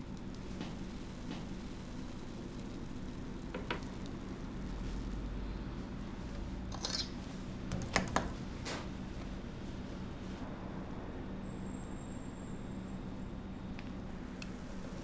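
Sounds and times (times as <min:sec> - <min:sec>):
steady low hum: 0:00.0 - 0:15.0
utensils clicking and clinking: 0:06.7 - 0:07.2
faint high whine: 0:10.0 - 0:15.0.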